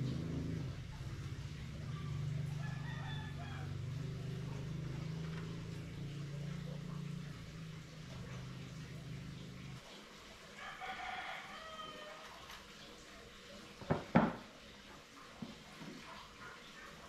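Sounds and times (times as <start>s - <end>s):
steady low hum: 0.0s - 10.0s
rooster crowing: 1.9s - 4.2s, 10.6s - 12.4s.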